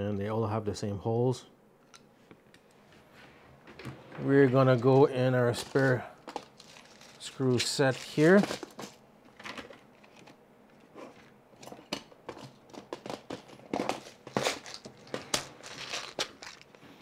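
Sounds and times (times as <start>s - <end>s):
small screws clinking and rattling: 13.7s - 16.8s.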